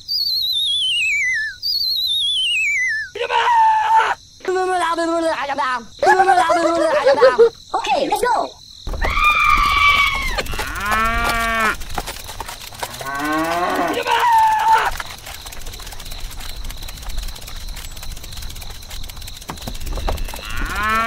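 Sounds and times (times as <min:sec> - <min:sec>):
cow mooing: 0:10.4 - 0:11.8, 0:12.8 - 0:14.9, 0:20.4 - 0:21.0.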